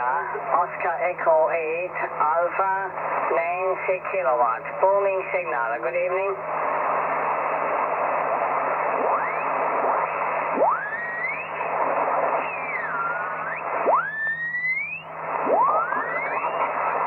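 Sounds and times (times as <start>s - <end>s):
radio static hiss: 0.0s - 17.0s
radio tones sliding in pitch: 8.8s - 17.0s.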